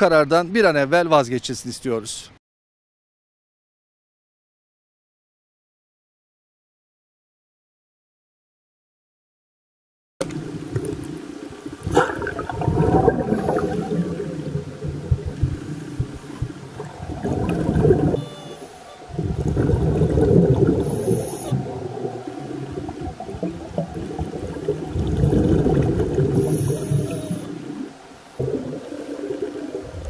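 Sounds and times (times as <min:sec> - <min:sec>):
underwater bubbles gurgling: 0:10.2 - 0:30.0.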